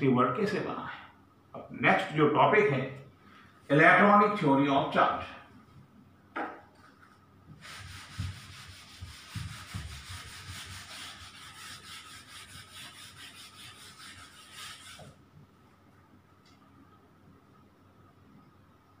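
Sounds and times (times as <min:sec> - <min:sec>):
duster rubbing on whiteboard: 0:07.5 - 0:15.2.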